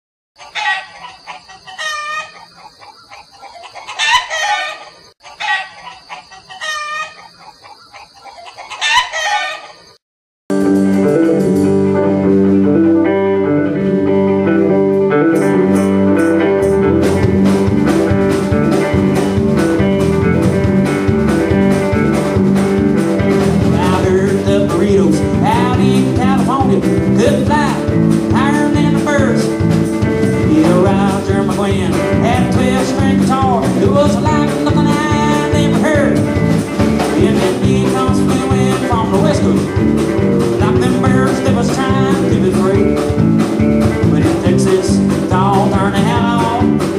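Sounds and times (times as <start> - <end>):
chickens crowing and clucking: 0.4 - 10.0, 16.7 - 46.8
bass guitar: 10.5 - 46.9
drums: 10.5 - 46.9
electric guitar: 10.5 - 46.9.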